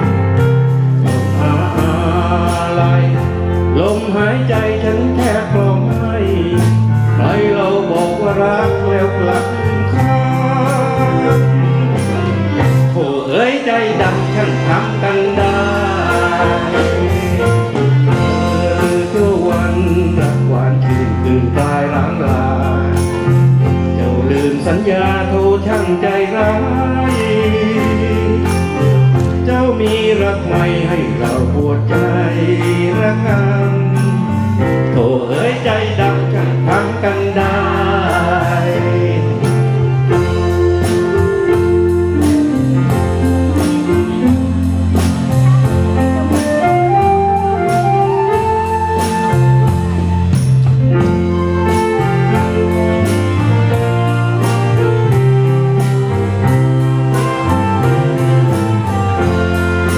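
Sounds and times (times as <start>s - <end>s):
band with bass line: 0.0s - 59.9s
man singing into microphone: 1.0s - 44.5s, 46.3s - 50.1s.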